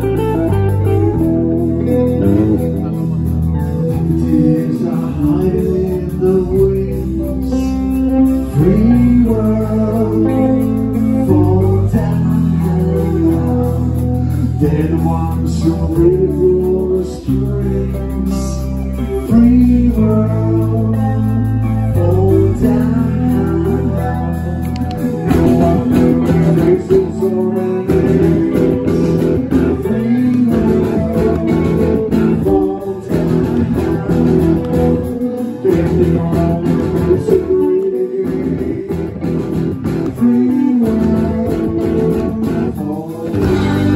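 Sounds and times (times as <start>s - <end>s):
electric guitar and bass: 0.0s - 43.9s
man singing: 0.0s - 43.9s
rock band playing: 0.0s - 43.9s.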